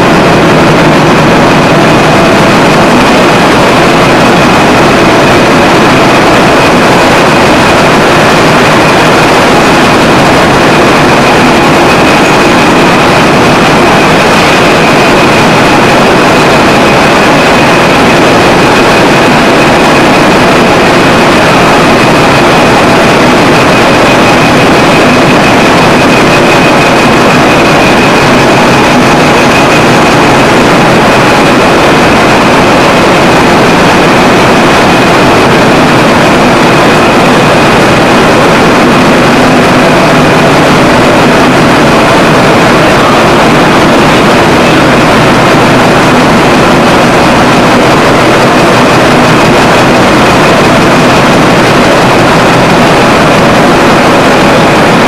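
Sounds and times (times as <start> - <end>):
high machine whine: 0.0 - 55.0
mill machinery running: 0.0 - 55.0.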